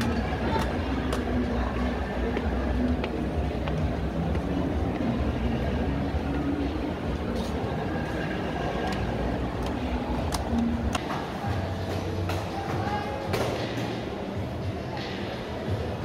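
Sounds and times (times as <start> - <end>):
low rumble of shopping mall: 0.0 - 16.0.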